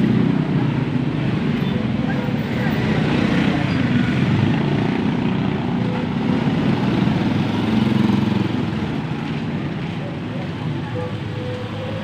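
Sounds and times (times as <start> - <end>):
motorcycle and scooter engines passing: 0.0 - 12.0.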